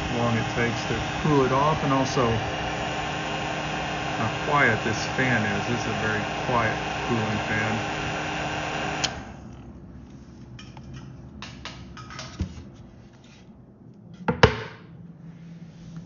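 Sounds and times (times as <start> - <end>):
heat gun blowing: 0.0 - 9.5
cooling fan hum: 0.0 - 14.3.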